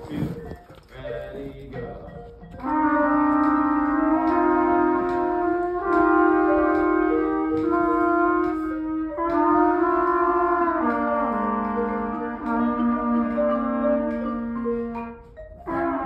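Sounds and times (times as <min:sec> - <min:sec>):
trumpets playing long notes: 0:02.6 - 0:16.0.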